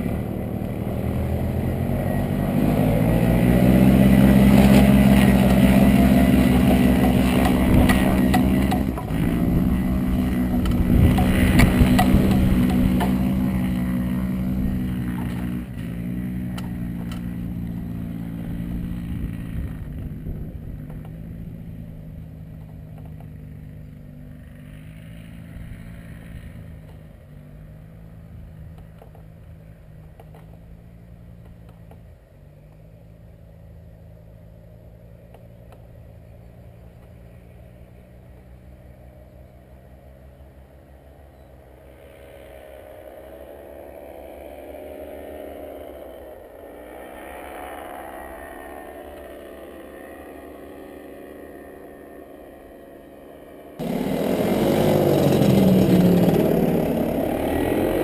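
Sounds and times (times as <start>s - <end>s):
propeller engine droning: 0.0s - 58.0s.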